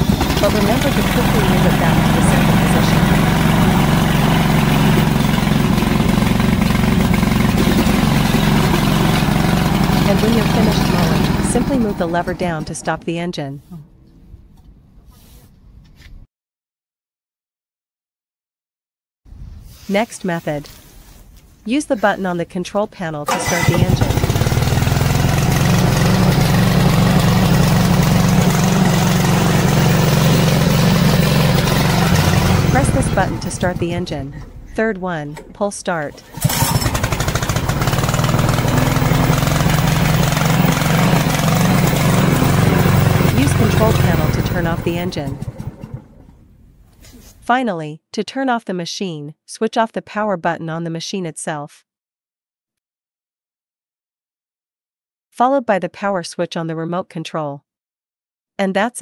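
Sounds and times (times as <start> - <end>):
mower engine running steadily: 0.0 - 12.9, 23.3 - 35.6, 36.2 - 46.5.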